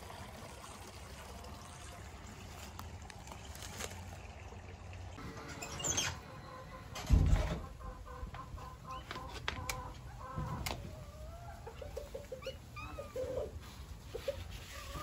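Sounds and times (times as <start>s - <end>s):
hens clucking: 5.2s - 15.0s.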